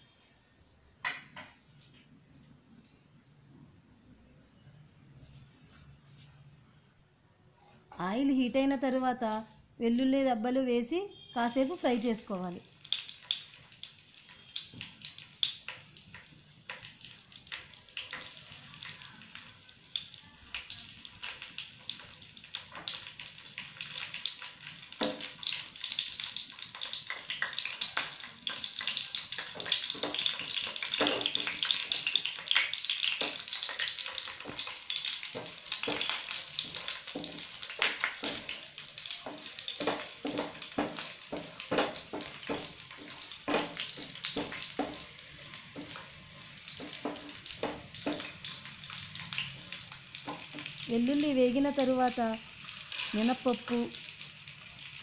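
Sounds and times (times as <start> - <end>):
garlic sizzling in hot oil: 11.3 - 55.0
wooden spatula stirring: 28.2 - 32.4, 33.0 - 48.8.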